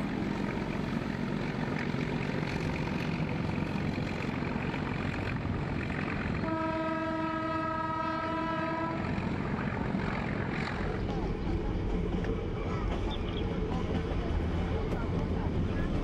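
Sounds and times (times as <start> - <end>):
train running noise: 0.0 - 16.0
locomotive horn blast: 6.4 - 9.4.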